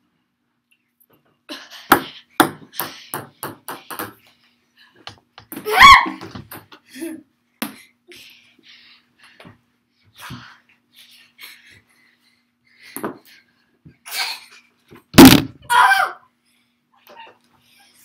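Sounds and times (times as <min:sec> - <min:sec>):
ping pong ball bouncing: 0:01.9 - 0:04.2.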